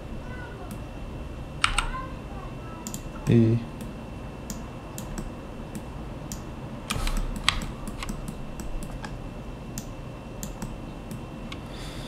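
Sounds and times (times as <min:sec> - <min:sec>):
steady background noise: 0:00.0 - 0:12.0
computer keyboard keystrokes: 0:01.6 - 0:01.9, 0:02.8 - 0:03.1, 0:04.5 - 0:09.2, 0:09.8 - 0:10.8.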